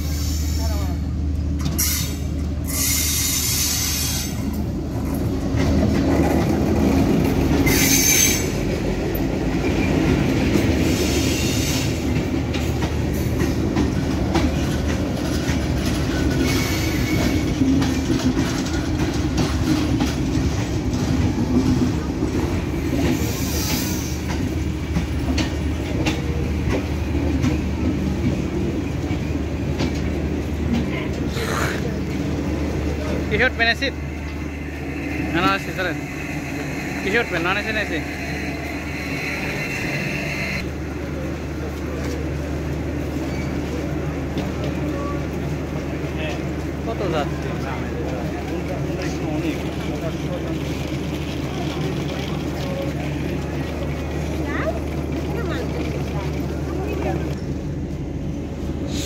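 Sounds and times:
train rumbling on rails: 0.0s - 59.0s
wheel squeals: 7.5s - 8.7s, 16.1s - 18.1s.

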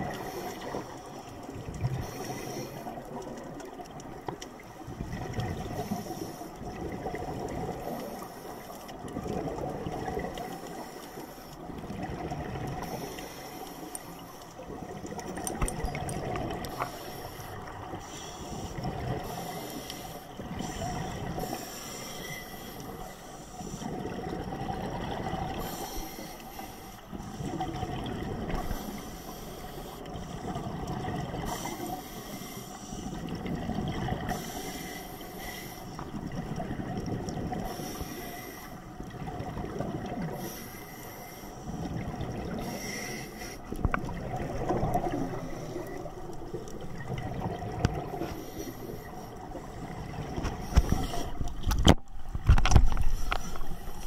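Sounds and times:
gurgling exhaled bubbles: 0.0s - 8.3s, 8.9s - 11.0s, 11.6s - 13.1s, 14.6s - 16.9s, 18.6s - 19.7s, 23.8s - 26.2s, 27.3s - 29.1s, 30.1s - 32.0s, 33.1s - 34.7s, 36.0s - 37.9s, 39.0s - 40.6s, 41.8s - 54.0s
regulator inhale hiss: 0.1s - 0.9s, 2.0s - 3.0s, 5.7s - 6.6s, 12.8s - 14.6s, 16.7s - 24.0s, 25.5s - 27.5s, 28.5s - 30.5s, 31.4s - 33.3s, 34.3s - 36.2s, 37.6s - 39.0s, 40.3s - 41.9s, 42.5s - 43.9s, 48.1s - 49.7s, 53.1s - 54.0s.

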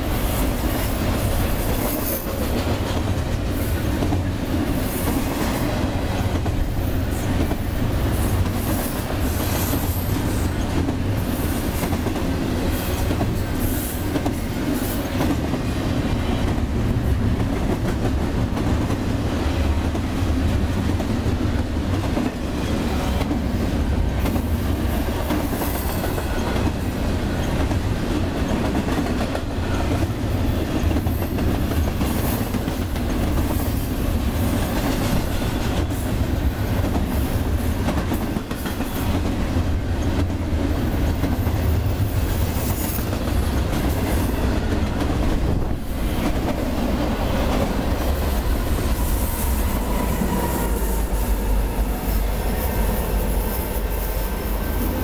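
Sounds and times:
freight train wheels rumbling: 0.0s - 55.0s
wheels clickety-clack and clatter: 24.2s - 46.8s.

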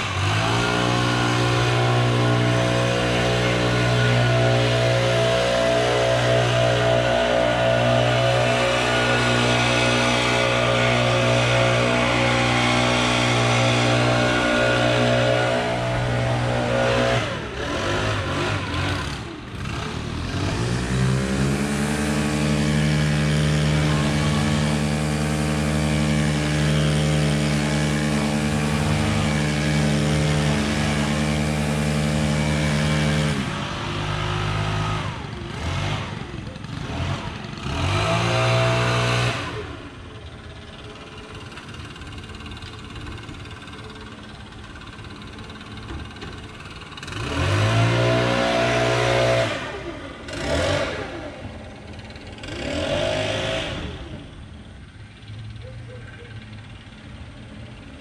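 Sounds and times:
small engine running at high throttle: 0.0s - 58.0s.

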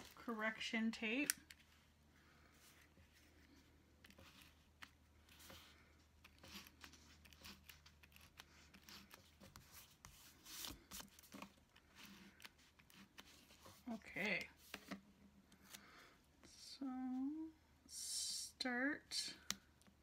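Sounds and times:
correction tape scratching paper: 6.2s - 13.8s.

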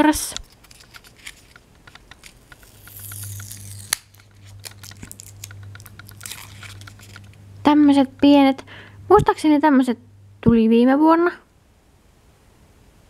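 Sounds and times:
low steady hum: 0.0s - 13.0s
metal tweezers clicking: 0.4s - 7.4s.

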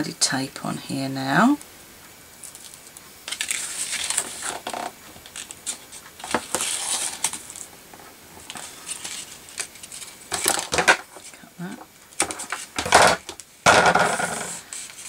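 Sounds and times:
tape pulled off roll rustling: 2.4s - 11.4s.

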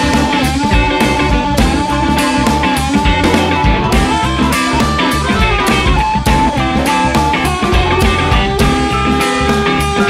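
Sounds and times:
bass guitar: 0.0s - 10.0s
drum kit beat: 0.0s - 10.0s
lead electric guitar bending notes: 0.0s - 10.0s.

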